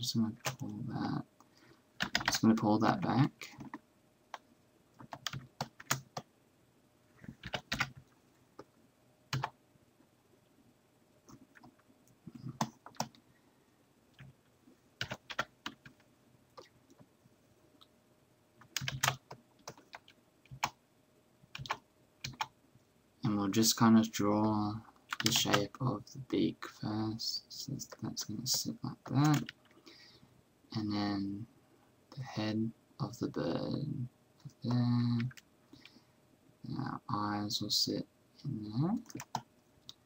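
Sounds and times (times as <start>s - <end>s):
computer keyboard clicks: 2.0s - 2.4s, 5.0s - 6.3s, 7.4s - 8.0s, 9.3s - 9.5s, 18.6s - 20.8s, 21.6s - 22.5s, 25.1s - 25.6s, 39.0s - 40.0s.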